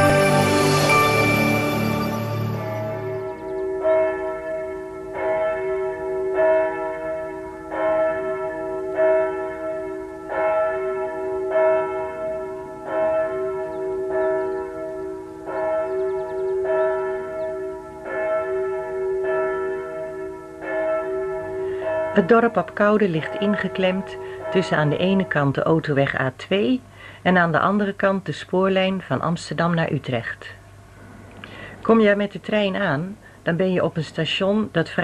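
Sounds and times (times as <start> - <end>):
church bells ringing: 0.0 - 25.7.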